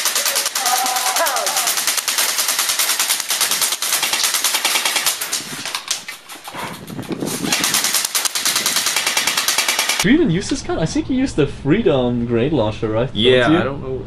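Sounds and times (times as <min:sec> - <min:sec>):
electric rifle firing full auto: 0:00.0 - 0:05.4, 0:07.5 - 0:10.0.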